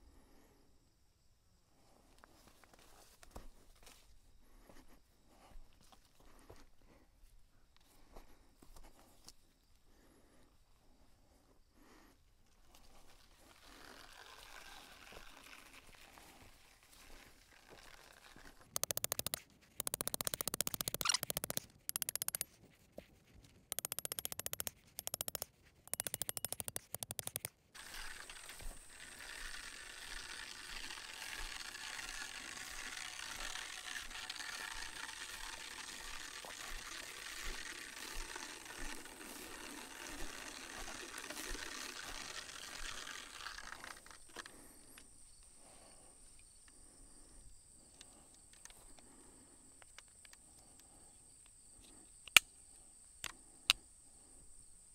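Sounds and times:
rapid mechanical ratchet clicking: 18.7 - 22.5, 23.7 - 44.2
thin high insect-like trill: 18.8 - 22.4, 23.7 - 27.5.

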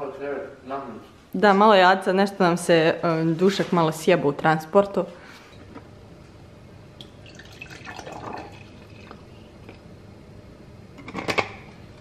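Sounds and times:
juice pouring into a glass: 7.0 - 9.4.

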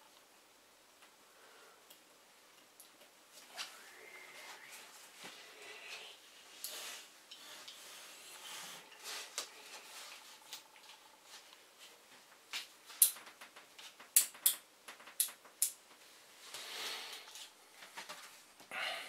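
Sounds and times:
hands rubbing and scraping wires: 3.4 - 18.5.

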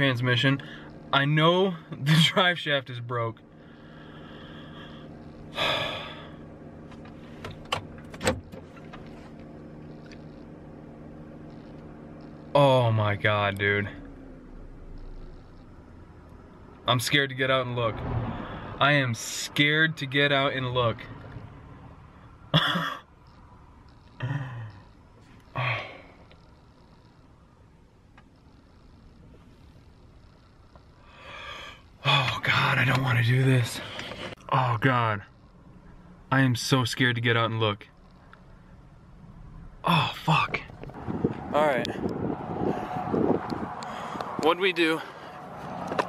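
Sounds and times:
truck engine idling: 0.0 - 17.8, 18.4 - 42.8
man groaning: 24.2 - 24.8.

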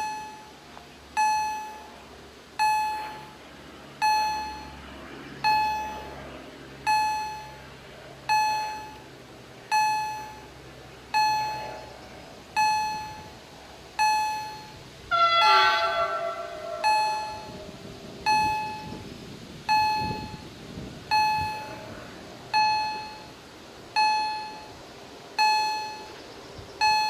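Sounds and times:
level crossing bell ringing: 0.0 - 0.5, 2.6 - 3.3, 4.0 - 4.7, 6.9 - 7.6, 8.3 - 9.0, 9.7 - 10.4, 11.2 - 11.8, 12.6 - 13.3, 14.0 - 14.8, 16.8 - 17.5, 22.6 - 23.3, 24.0 - 24.7, 25.4 - 26.1
multi-pitch falling tone: 4.0 - 4.8, 5.4 - 6.2, 14.0 - 19.0.

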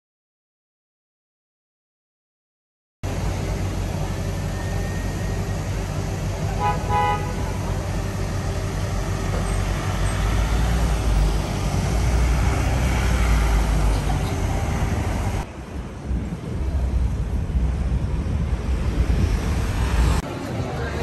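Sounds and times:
buses and cars going by: 3.0 - 21.0
wind buffeting microphone: 11.1 - 21.0.

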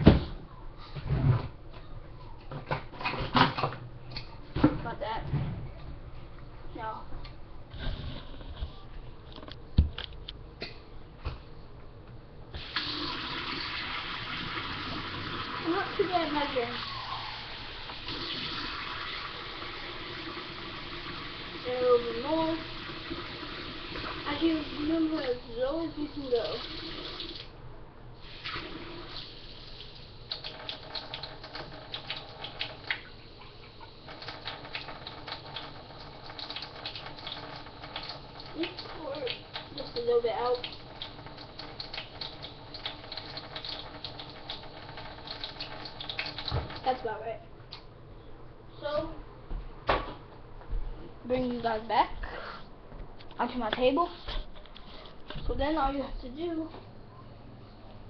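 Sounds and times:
water running into plastic cup: 12.6 - 27.5, 28.2 - 47.0
faucet water trickling into cup: 30.3 - 46.8.

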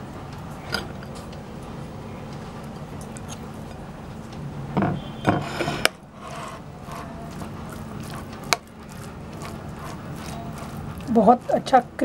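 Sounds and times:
metal spoon scraping glass bowl: 5.3 - 8.2.

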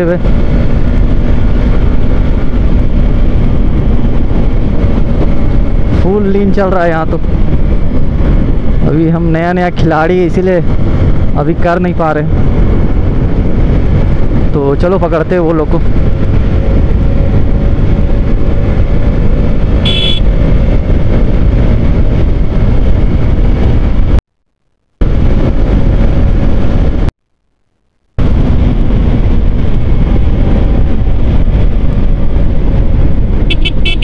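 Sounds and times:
motorcycle engine running: 0.0 - 6.4, 15.8 - 24.2, 28.2 - 34.0
wind rush on microphone: 0.0 - 24.2, 25.0 - 27.2, 28.2 - 34.0.

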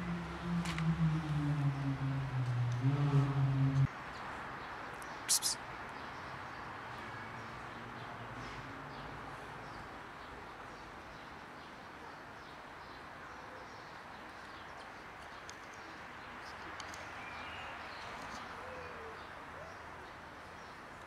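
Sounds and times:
outdoor background noise: 0.0 - 21.0
birds chirping: 5.0 - 5.6.

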